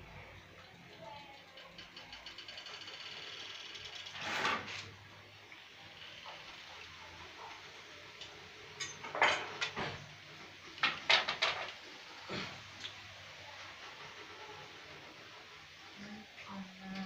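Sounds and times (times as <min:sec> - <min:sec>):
wood knocking and clattering: 0:10.8 - 0:11.8.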